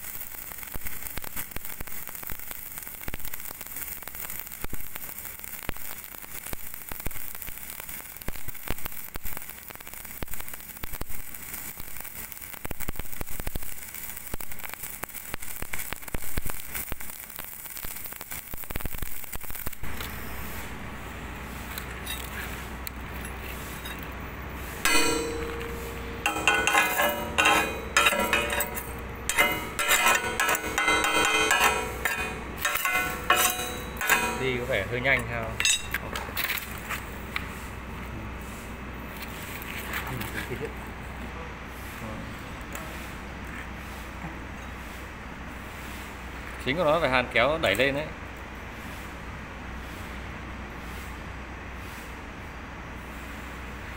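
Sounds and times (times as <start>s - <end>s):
welding arc crackling: 0.0s - 44.2s
hammer clanging on metal: 24.8s - 36.0s.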